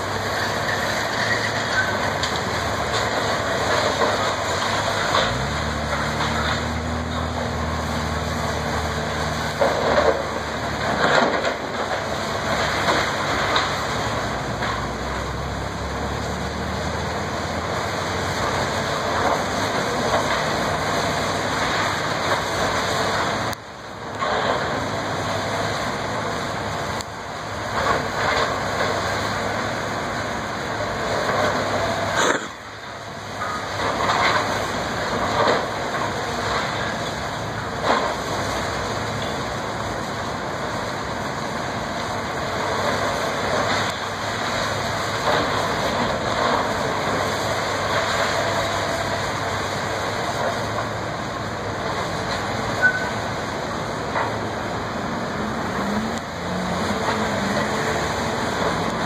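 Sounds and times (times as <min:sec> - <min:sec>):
masonry and debris crashing: 0:00.0 - 0:15.2
excavator engine running: 0:00.0 - 0:59.0.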